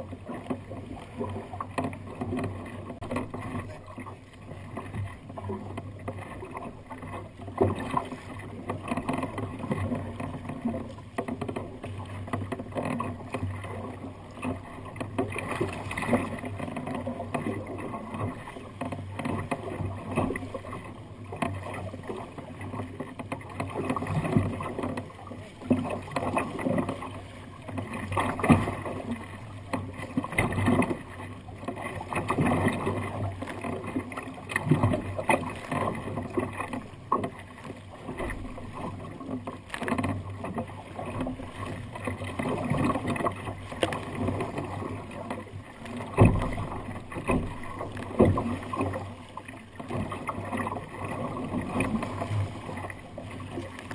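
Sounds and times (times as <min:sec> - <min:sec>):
water slapping against kayak hull: 0:00.0 - 0:53.9.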